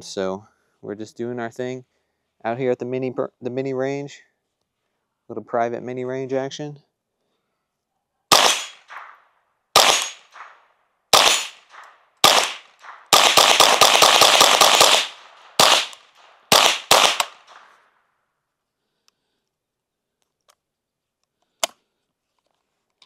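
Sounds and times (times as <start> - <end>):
rifle shots with echo: 8.3 - 17.9.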